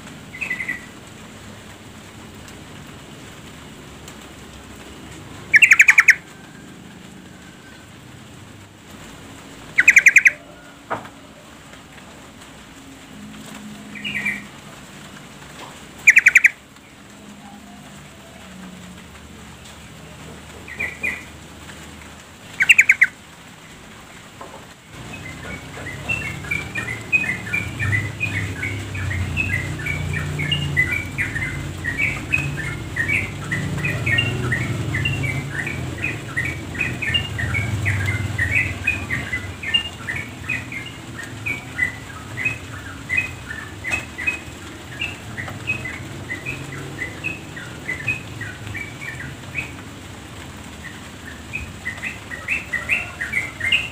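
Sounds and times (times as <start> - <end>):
bird calling: 0.3 - 1.0, 5.5 - 6.5, 9.7 - 10.8, 16.0 - 16.6, 22.5 - 23.2, 25.0 - 49.9
quick chattering bird chirps: 5.6 - 6.2, 16.1 - 16.5.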